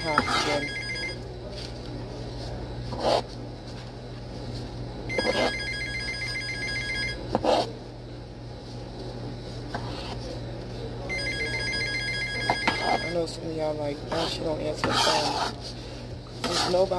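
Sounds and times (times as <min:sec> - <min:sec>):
steady low hum: 0:00.0 - 0:16.9
telephone warbling ring: 0:05.1 - 0:07.2, 0:11.1 - 0:13.2.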